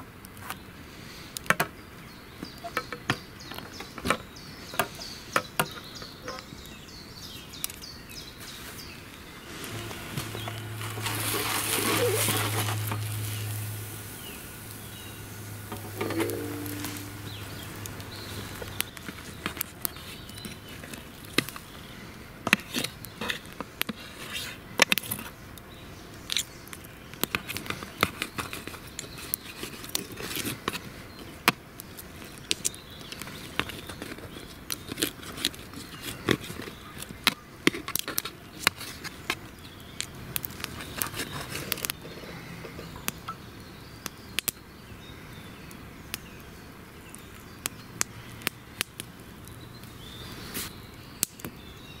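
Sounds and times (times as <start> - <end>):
steak sizzling on a metal pan: 9.6 - 16.0.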